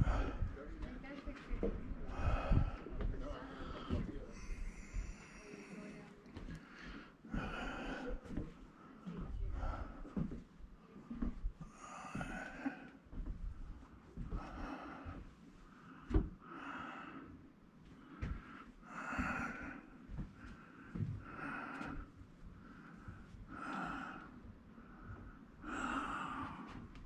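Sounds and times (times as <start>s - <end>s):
person breathing hard: 0.0s - 0.9s, 1.6s - 10.4s, 11.0s - 27.0s.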